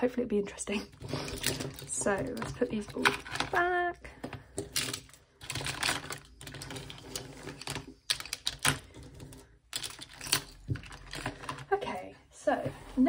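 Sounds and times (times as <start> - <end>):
plastic toys clicking into tray: 1.0 - 3.7, 4.5 - 11.7.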